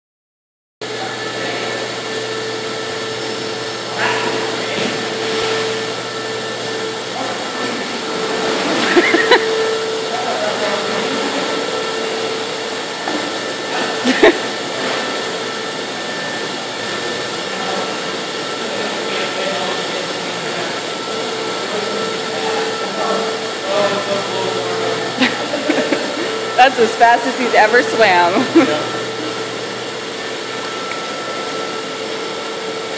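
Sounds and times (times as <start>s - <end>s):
pool equipment drone: 0.8s - 32.9s.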